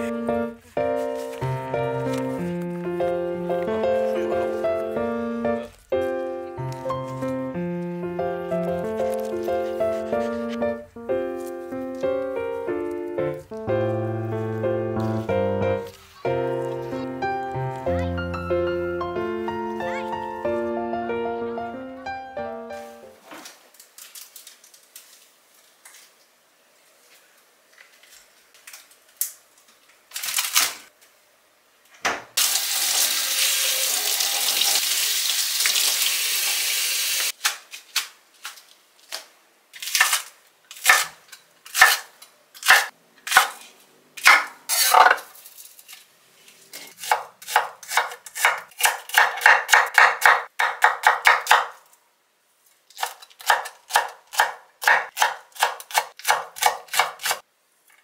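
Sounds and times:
knife chopping on wooden board: 47.0s - 51.7s, 53.0s - 57.4s.

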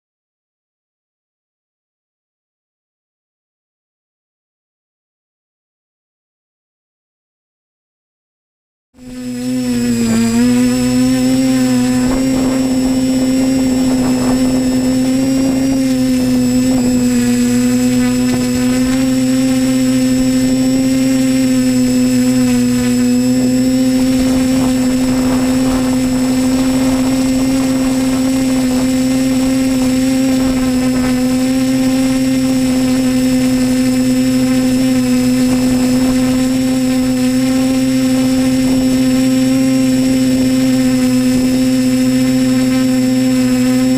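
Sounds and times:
quadcopter propellers humming: 9.0s - 43.9s.

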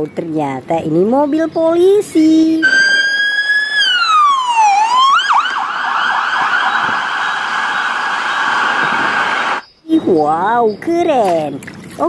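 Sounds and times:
police siren wailing and yelping: 2.6s - 9.6s.

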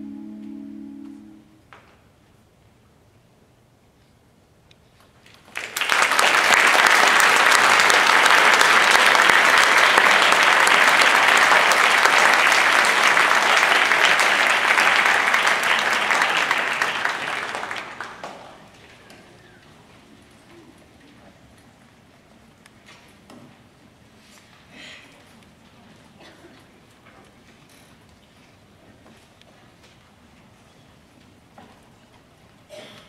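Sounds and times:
audience applauding: 5.2s - 19.7s.

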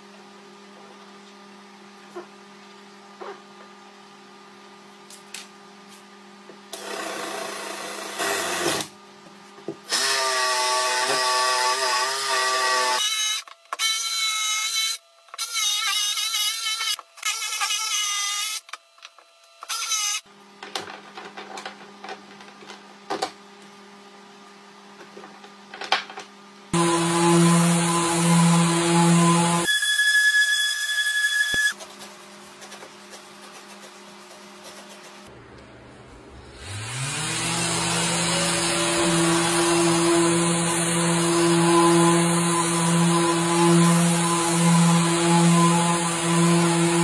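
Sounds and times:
jigsaw cutting wood: 6.8s - 8.9s, 26.8s - 29.7s, 36.5s - 47.0s
cordless drill boring wood: 9.9s - 14.1s, 26.8s - 31.7s, 36.6s - 47.0s.

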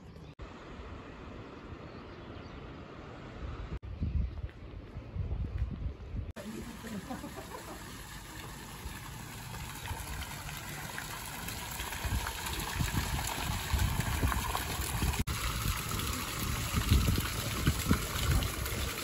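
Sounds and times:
fountain water splashing: 6.4s - 19.0s.

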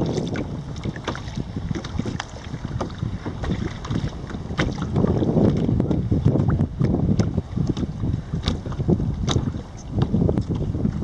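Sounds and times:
water splashing against kayak: 0.0s - 11.0s
wind buffeting microphone: 0.0s - 11.0s.

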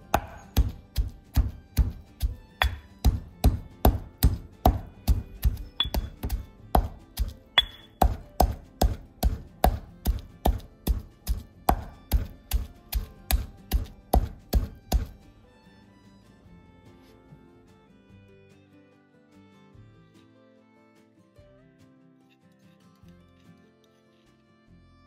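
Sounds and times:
stone pestle pounding in mortar: 0.0s - 15.2s.

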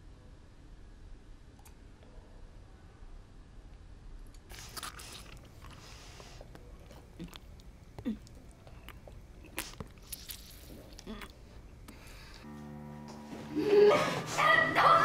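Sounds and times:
woman chewing and smacking: 6.4s - 11.4s.

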